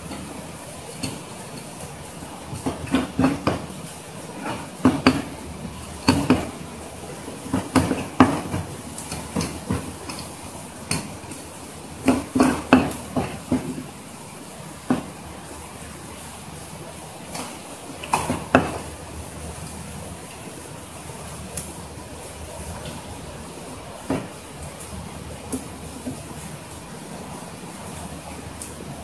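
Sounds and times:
steady background hiss: 0:00.0 - 0:29.0.

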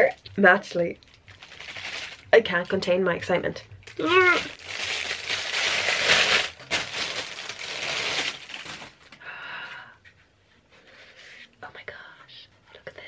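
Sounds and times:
plastic wrapping crinkling: 0:00.2 - 0:09.2.

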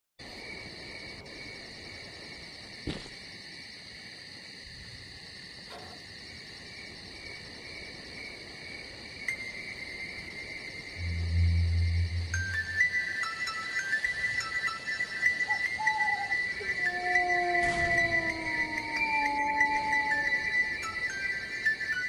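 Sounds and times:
high-pitched chirring drone: 0:10.8 - 0:22.0.

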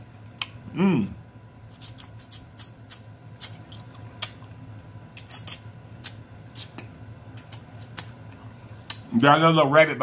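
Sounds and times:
lip smacks and sucking clicks: 0:01.7 - 0:09.1.

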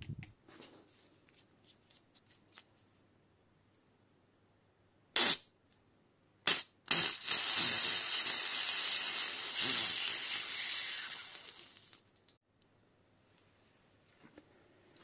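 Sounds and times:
compressed air hissing from valve: 0:06.5 - 0:12.0.

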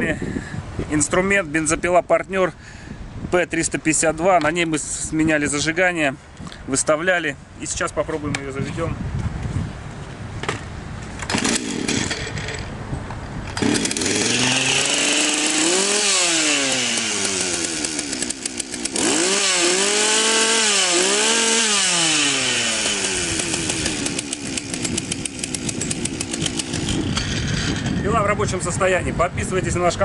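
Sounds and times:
chainsaw starter cord pulled: 0:11.2 - 0:12.7, 0:13.5 - 0:28.0
chainsaw engine revving: 0:11.3 - 0:12.6, 0:13.6 - 0:28.0.

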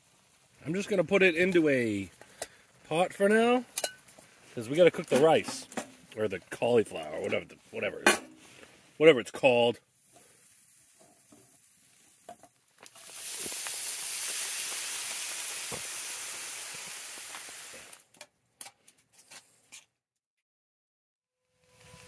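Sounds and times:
rice sizzling in a hot pan: 0:00.0 - 0:02.2, 0:09.9 - 0:18.1.

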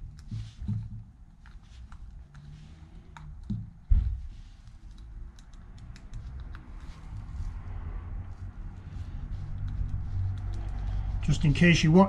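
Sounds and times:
dull thump: 0:03.5 - 0:04.4.

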